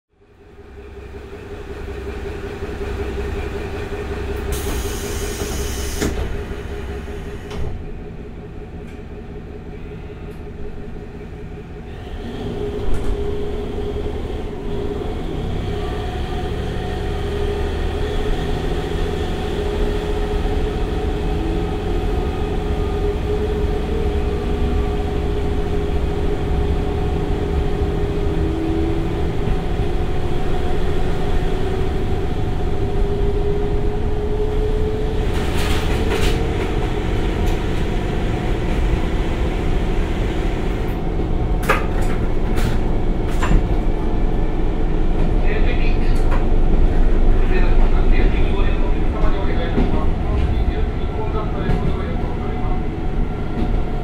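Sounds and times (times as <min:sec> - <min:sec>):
diesel railcar engine: 0:00.1 - 0:54.0.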